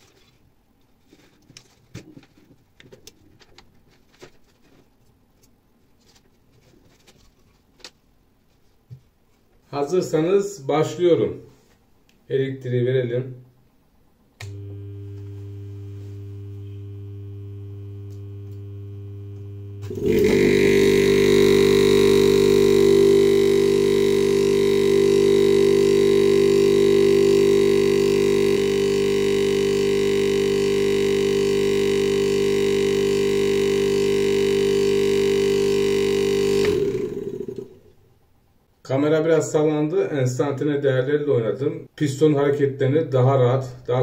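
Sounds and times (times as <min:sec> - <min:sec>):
steady mains hum: 0:00.4 - 0:42.0
compressor motor pumping: 0:14.4 - 0:38.0.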